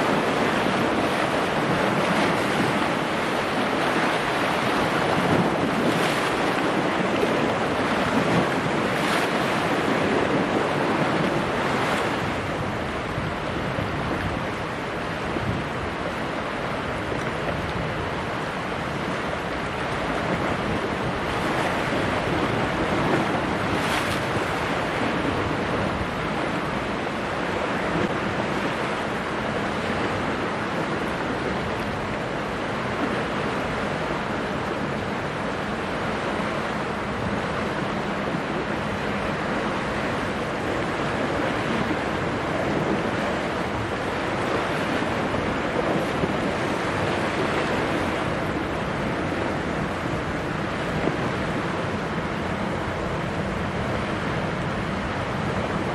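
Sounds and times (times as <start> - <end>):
choppy sea water: 0.0 - 55.9
wind buffeting microphone: 0.0 - 55.9.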